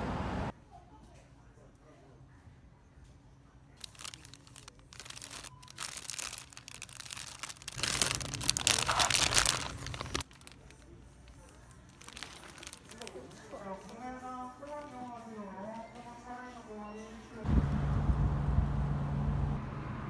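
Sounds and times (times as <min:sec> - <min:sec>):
plastic packages crinkling: 0:03.8 - 0:16.0.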